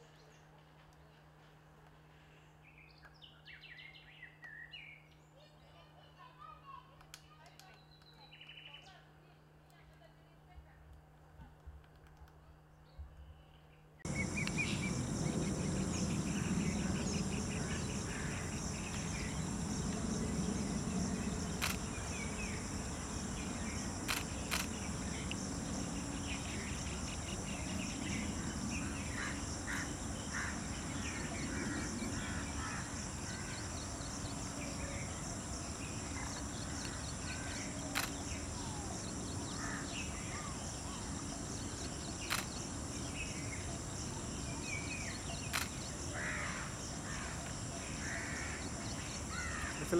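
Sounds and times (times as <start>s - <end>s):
bird chirps: 13.6s - 32.2s
insects trilling: 14.0s - 49.9s
low rumble: 14.1s - 37.2s
sharp clicks: 14.4s - 15.0s, 21.4s - 22.5s, 24.0s - 25.4s, 37.9s - 38.4s, 42.2s - 42.6s, 45.4s - 45.9s.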